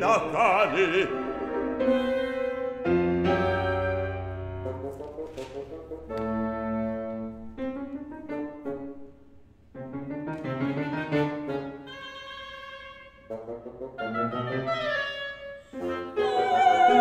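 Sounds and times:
piano chords: 0.0s - 11.9s.

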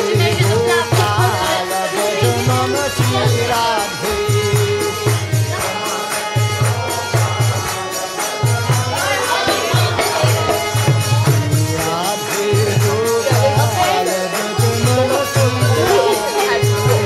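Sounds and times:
hand drum rhythm: 0.0s - 17.0s
jingling percussion: 0.0s - 17.0s
person singing a chant: 11.5s - 17.0s.

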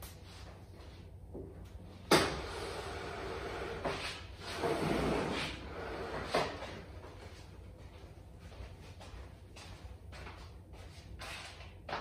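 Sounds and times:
metal table scraping on floor: 2.4s - 6.8s.

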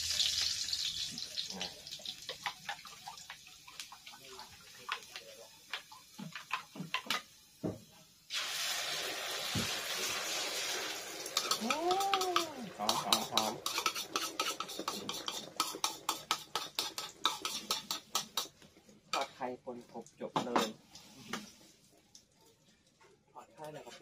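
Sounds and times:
egg sizzling in hot oil: 0.0s - 19.3s
spoon scraping and tapping bowl: 11.4s - 18.6s.

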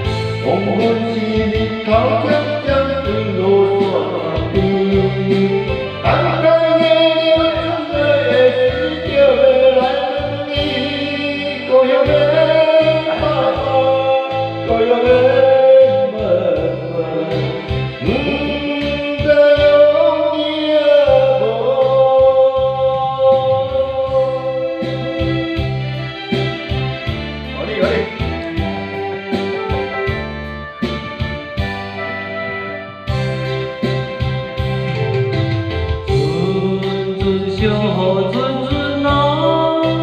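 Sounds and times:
backing track music: 0.0s - 40.0s
man singing karaoke: 0.0s - 40.0s.

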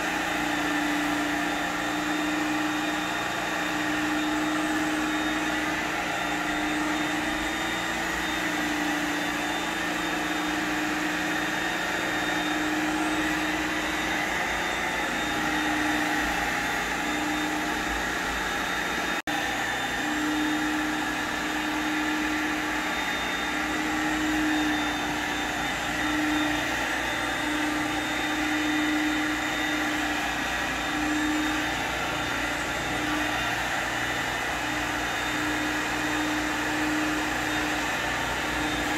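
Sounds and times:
carpet cleaner suction hiss: 0.0s - 38.9s.

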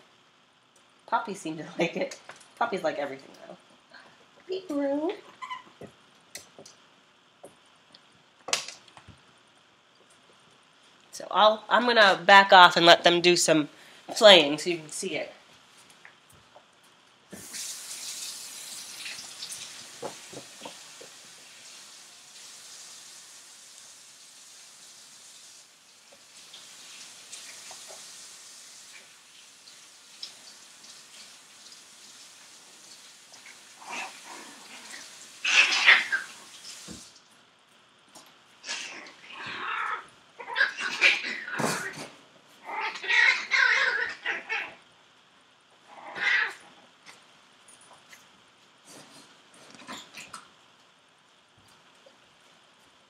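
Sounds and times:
steady hiss: 11.8s - 39.8s
puppies yelping: 35.4s - 36.4s, 42.7s - 44.8s.

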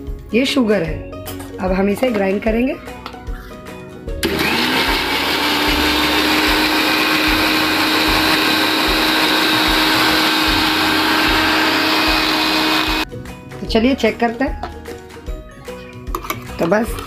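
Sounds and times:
mixer grinder motor whir: 4.2s - 13.1s.

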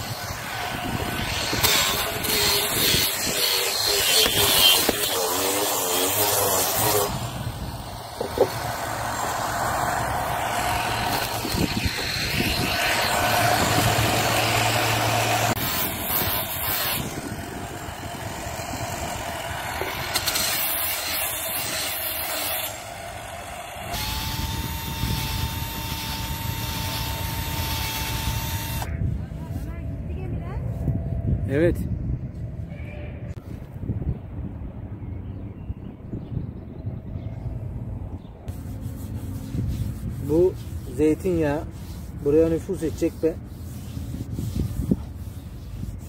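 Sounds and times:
drill sanding wood: 0.0s - 28.9s, 38.5s - 46.0s.

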